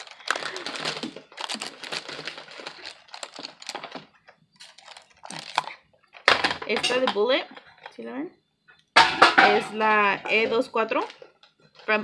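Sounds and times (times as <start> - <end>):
crinkling: 0.0 - 12.0
makeup brushes clattering: 6.3 - 7.3.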